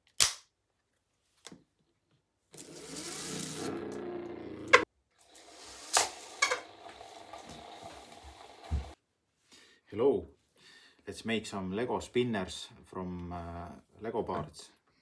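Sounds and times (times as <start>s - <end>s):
toy spinners whirring: 2.6s - 4.0s, 5.2s - 9.0s.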